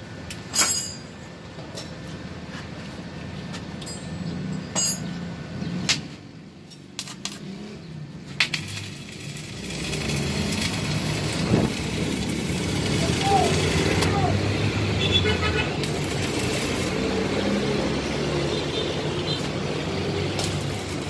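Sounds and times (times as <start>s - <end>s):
welding rod clicks and crackles: 6.7s - 7.5s, 8.4s - 14.1s, 15.8s - 17.2s, 20.2s - 21.0s
arc welding crackling hiss: 8.5s - 14.7s, 15.3s - 18.1s, 19.0s - 21.0s.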